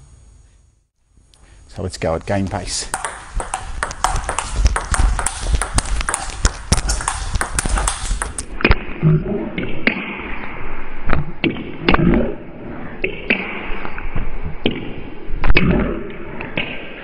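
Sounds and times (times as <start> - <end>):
table tennis ball clicking: 2.9 - 8.6.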